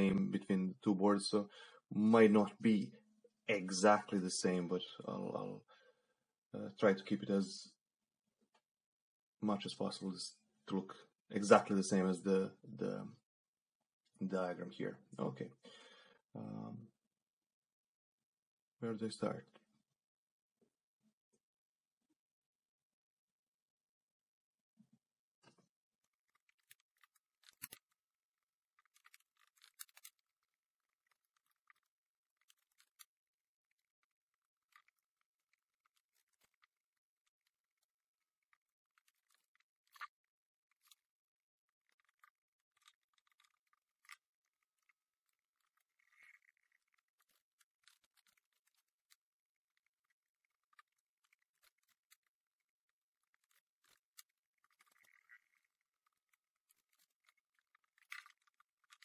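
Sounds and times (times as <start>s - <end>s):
faint small clicks: 28.8s - 37.9s.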